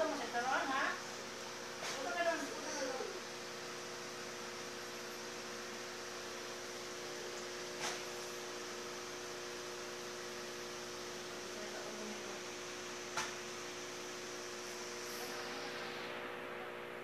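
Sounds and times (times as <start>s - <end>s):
aquarium air pump humming: 0.0s - 17.0s.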